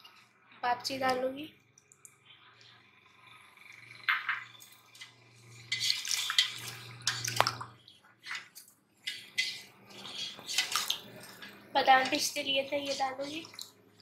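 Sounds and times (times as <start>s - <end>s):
liquid swishing and sloshing: 4.6s - 14.0s.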